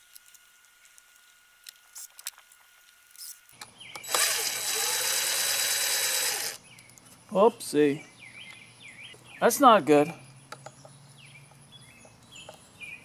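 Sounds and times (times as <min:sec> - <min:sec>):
cordless drill whining: 0:04.0 - 0:06.6.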